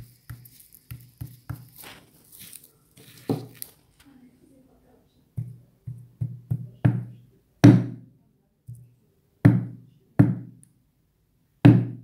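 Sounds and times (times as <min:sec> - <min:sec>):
knife knocking on coconut: 0:05.4 - 0:08.0.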